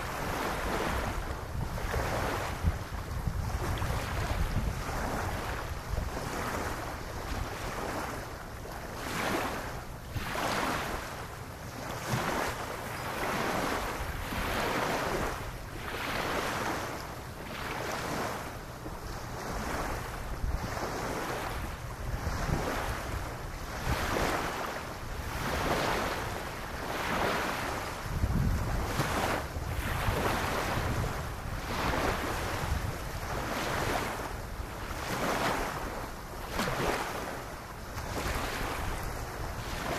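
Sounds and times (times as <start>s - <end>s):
wind buffeting microphone: 0.0s - 8.2s, 19.0s - 24.6s, 25.2s - 36.0s
small waves lapping on sand: 0.0s - 39.9s.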